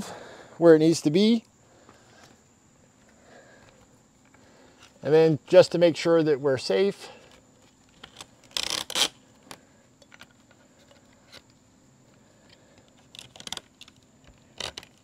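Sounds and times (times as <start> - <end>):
strap buckle rattling and clicking: 7.3 - 11.5, 12.4 - 15.0.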